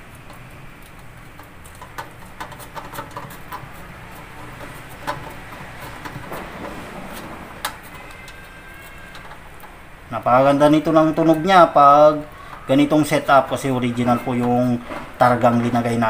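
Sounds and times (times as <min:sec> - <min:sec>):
wire clicking and scratching: 0:00.0 - 0:16.0.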